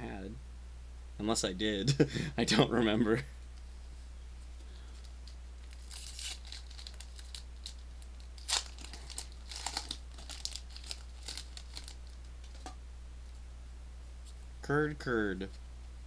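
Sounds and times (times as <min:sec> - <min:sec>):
steady hum: 0:00.0 - 0:16.0
foil wrapper crinkling: 0:04.9 - 0:12.6.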